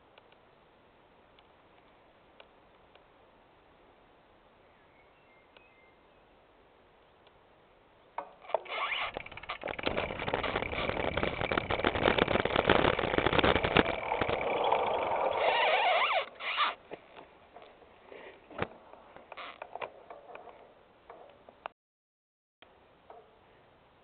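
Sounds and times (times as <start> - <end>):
bicycle rattling over gravel: 8.8 - 15.6.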